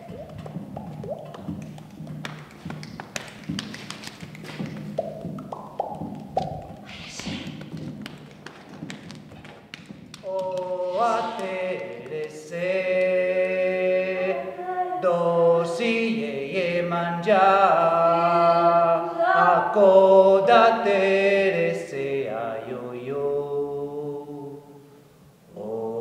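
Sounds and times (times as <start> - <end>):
soft taps and clicks: 0.1 - 10.6
voices singing a chant-like song: 10.2 - 24.8, 25.5 - 26.0.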